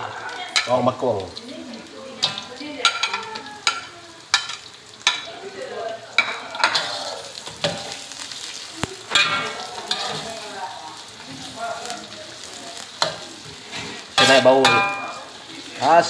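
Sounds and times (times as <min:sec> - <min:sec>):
onions sizzling in hot oil: 0:00.0 - 0:16.0
spatula scraping and knocking wok: 0:02.2 - 0:05.3, 0:06.2 - 0:11.6, 0:12.4 - 0:15.5.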